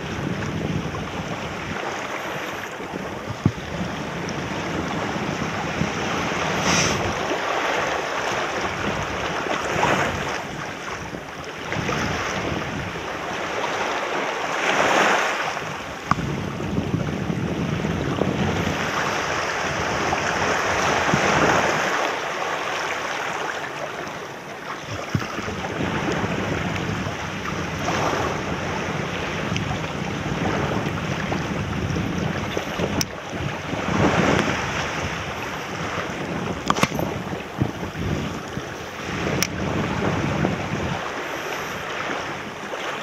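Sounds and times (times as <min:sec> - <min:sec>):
waves breaking on rocks: 0:00.0 - 0:43.0
wind on microphone: 0:00.0 - 0:43.0
sharp click: 0:36.6 - 0:37.1.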